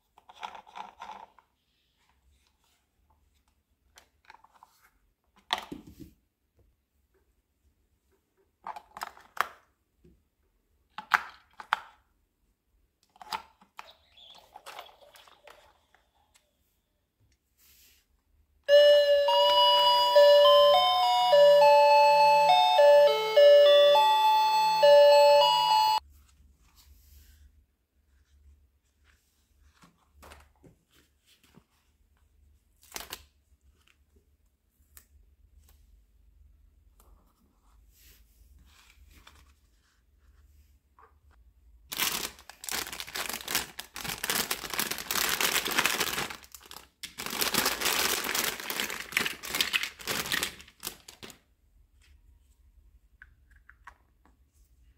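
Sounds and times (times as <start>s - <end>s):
electronic chime tune: 18.7s - 26.0s.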